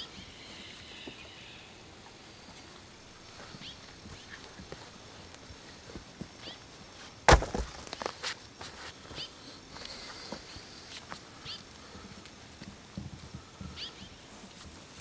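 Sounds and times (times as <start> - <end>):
faint footsteps: 0.0 - 15.0
handling noises: 3.2 - 9.0.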